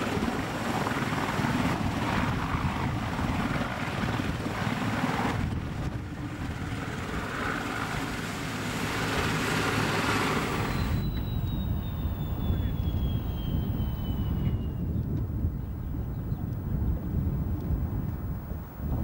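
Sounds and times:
helicopter rotor beating: 0.0 - 19.0
thin high whine falling in pitch: 10.5 - 16.3.

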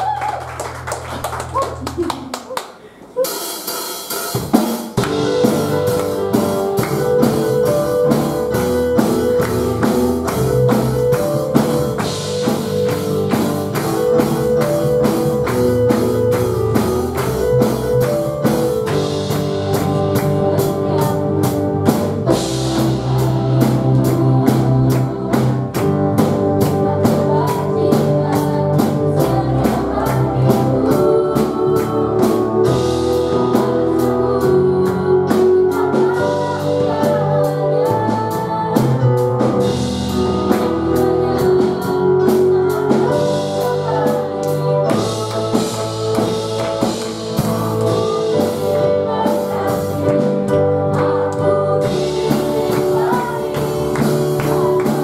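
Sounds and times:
bass guitar: 0.0 - 2.3, 5.0 - 55.0
drum kit beat: 0.0 - 55.0
keyboard chords: 4.1 - 55.0
girl singing into microphone: 48.0 - 55.0.

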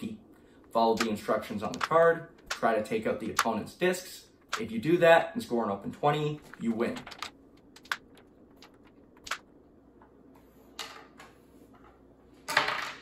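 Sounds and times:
wooden discs clicking: 0.7 - 3.6, 4.4 - 4.7, 6.4 - 9.5.

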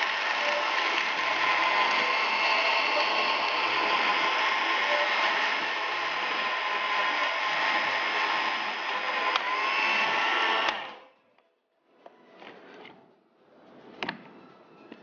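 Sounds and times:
blender motor running: 0.0 - 11.0.

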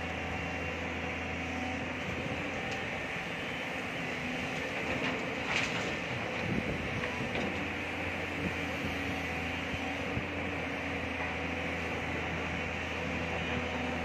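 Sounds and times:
excavator engine and hydraulics: 0.0 - 14.0.

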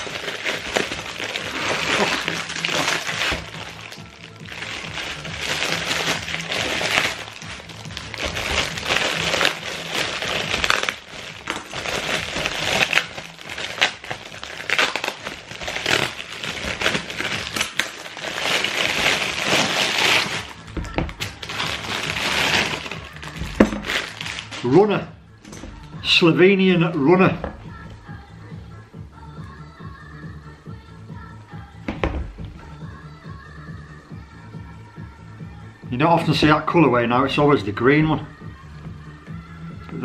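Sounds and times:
packaging rustling and crinkling: 0.0 - 24.8
music playing: 0.0 - 40.0.

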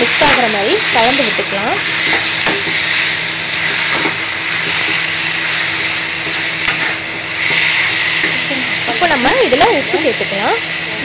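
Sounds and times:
chicken sizzling in a pan: 0.0 - 11.0
ladle scraping and clicking on pan: 3.6 - 8.4.

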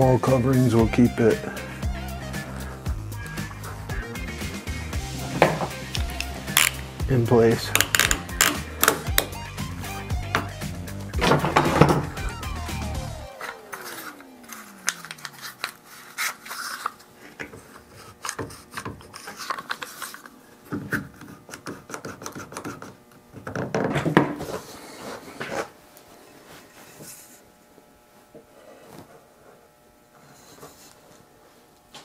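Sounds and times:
clamps ratcheting clicks: 7.7 - 9.3.

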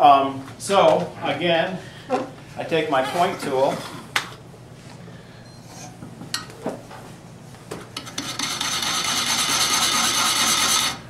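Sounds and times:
tool rasping on spinning wood: 8.0 - 11.0.

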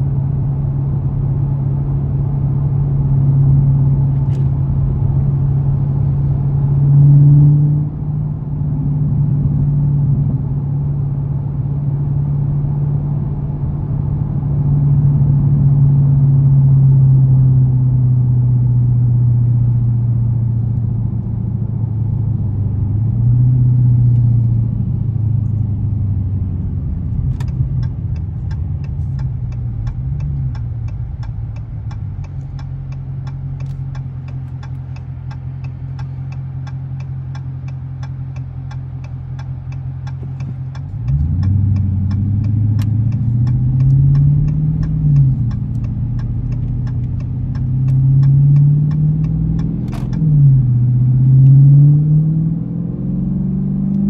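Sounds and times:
car engine idling and pulling away: 0.0 - 54.0
turn signal ticking: 24.1 - 52.3.

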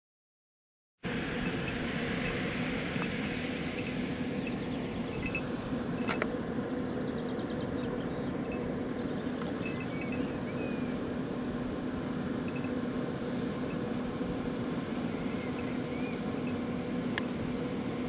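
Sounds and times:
low hum: 1.0 - 18.0
steady hiss: 1.0 - 18.0
small bell jingling: 1.4 - 6.2, 9.6 - 10.4, 12.4 - 12.8, 15.4 - 16.6.

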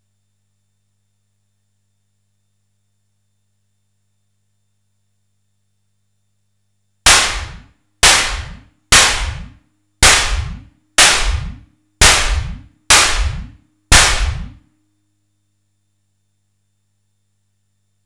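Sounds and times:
electronic snare drum hits: 7.1 - 14.6.

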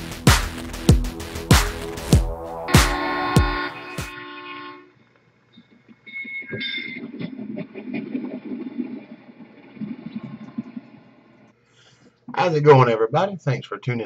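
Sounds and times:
electronic music: 0.0 - 4.7.

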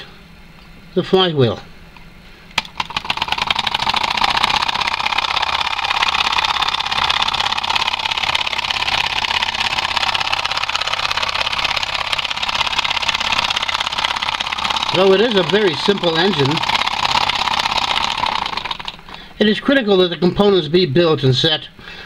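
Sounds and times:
small solenoid engine clattering: 2.6 - 19.3.

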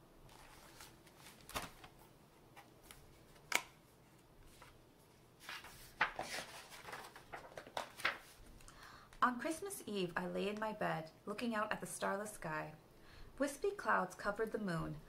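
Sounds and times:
book pages rustling: 0.3 - 8.6.

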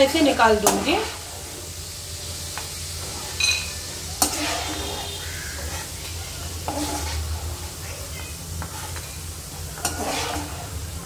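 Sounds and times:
nuts sizzling in hot fat: 0.0 - 11.0
metal spoon clinking: 3.4 - 4.5.

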